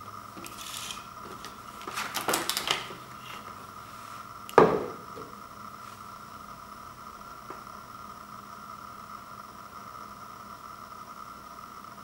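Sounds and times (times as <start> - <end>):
thump on wooden floor: 4.6 - 5.3.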